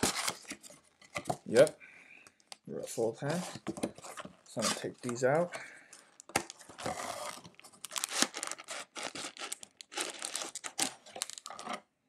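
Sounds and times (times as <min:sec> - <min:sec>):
cellophane packs crinkling: 0:03.2 - 0:11.8.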